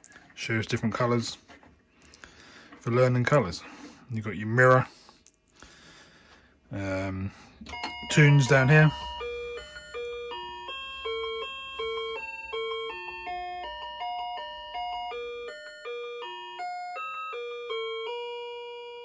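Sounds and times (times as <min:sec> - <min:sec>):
electronic toy beeping tune: 0:07.7 - 0:19.0.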